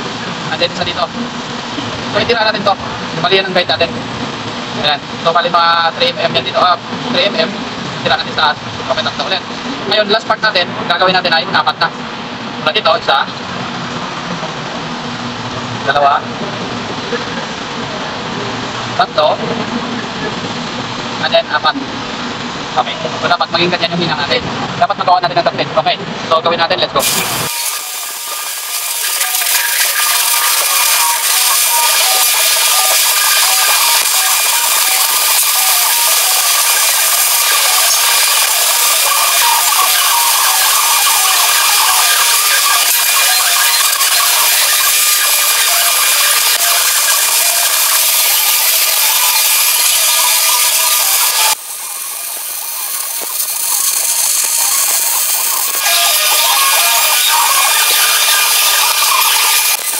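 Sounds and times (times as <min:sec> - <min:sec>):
welding arc crackling hiss: 0:27.0 - 0:59.9
quiet crackle: 0:47.8 - 0:55.8.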